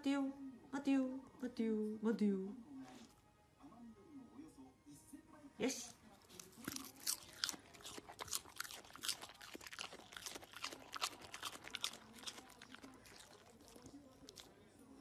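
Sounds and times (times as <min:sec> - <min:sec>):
dog crunching food: 0:06.1 - 0:15.0.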